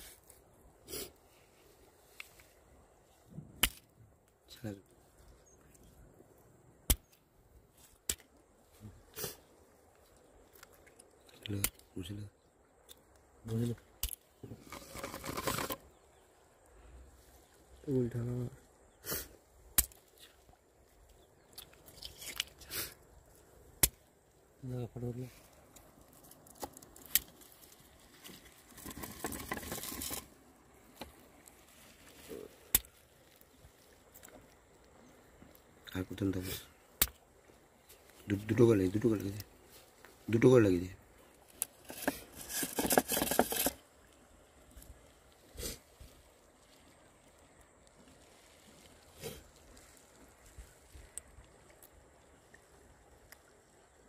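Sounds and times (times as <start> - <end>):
stone cracking mussel shells: 13.9 - 16.0, 28.7 - 31.6, 41.5 - 43.8
rustling and scraping of shells: 13.9 - 16.2, 21.0 - 23.5, 25.4 - 34.8, 41.2 - 51.2.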